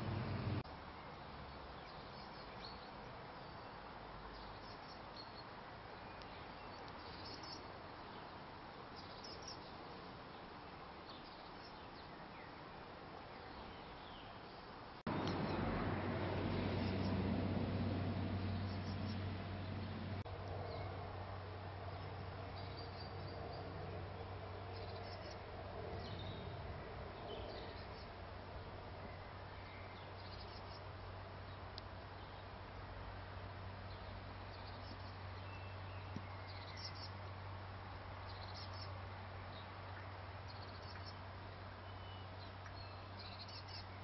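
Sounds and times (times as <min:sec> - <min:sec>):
low hum: 0:00.0 - 0:00.6, 0:15.1 - 0:22.5
small birds chirping: 0:00.0 - 0:21.0, 0:21.9 - 0:32.6, 0:33.8 - 0:44.0.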